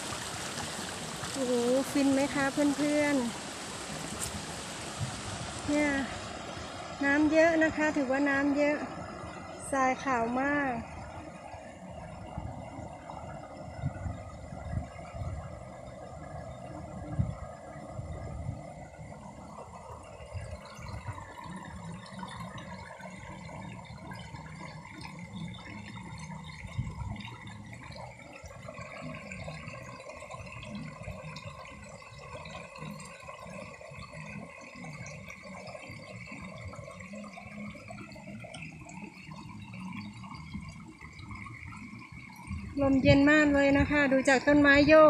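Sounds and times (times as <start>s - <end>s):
stream rushing over stones: 0.0s - 45.0s
wind on microphone: 3.9s - 7.2s, 13.7s - 18.8s, 42.4s - 45.0s.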